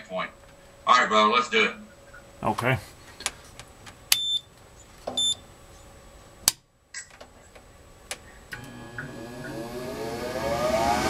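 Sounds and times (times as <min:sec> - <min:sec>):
short electronic beeps: 0:04.2 - 0:04.5, 0:05.2 - 0:05.4
blower motor humming: 0:08.5 - 0:11.0.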